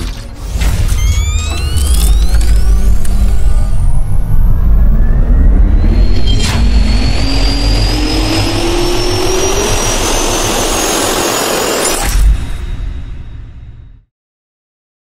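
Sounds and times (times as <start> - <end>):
jet engine spooling up: 0.6 - 12.0.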